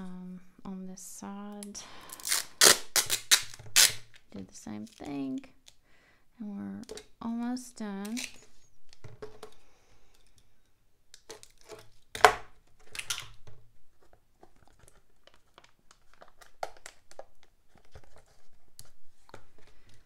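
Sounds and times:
packing tape crinkling and rasping: 0:01.6 - 0:05.8, 0:08.0 - 0:10.4, 0:11.1 - 0:20.0.

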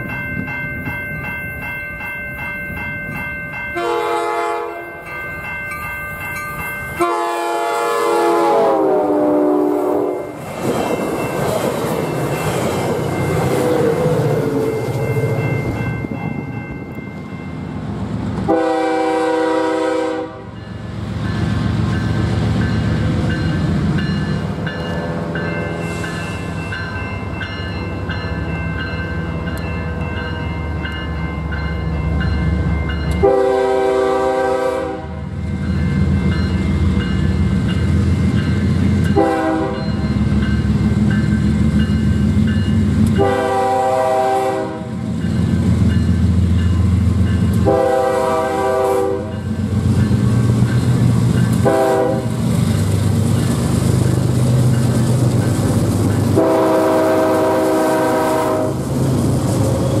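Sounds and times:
train air horn blasts: 0:03.8 - 0:04.8, 0:07.0 - 0:10.4, 0:18.5 - 0:20.6, 0:33.2 - 0:35.3, 0:39.2 - 0:39.8, 0:43.2 - 0:44.9, 0:47.6 - 0:49.4, 0:51.6 - 0:52.4, 0:56.4 - 0:58.8.

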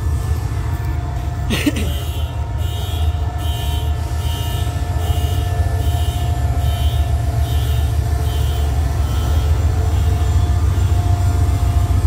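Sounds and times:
train rumbling past: 0:00.0 - 0:12.0.

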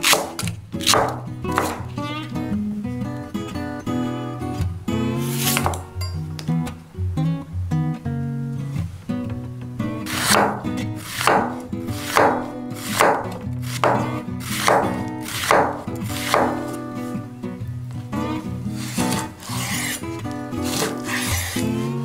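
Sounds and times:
knife slicing onion on wooden board: 0:00.0 - 0:01.9, 0:05.2 - 0:05.9, 0:10.0 - 0:17.2, 0:18.7 - 0:22.0
background music: 0:00.0 - 0:22.0.

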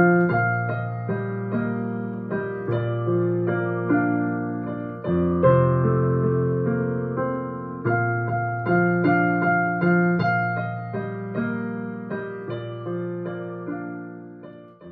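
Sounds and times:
slow keyboard melody over chords: 0:00.0 - 0:14.9.

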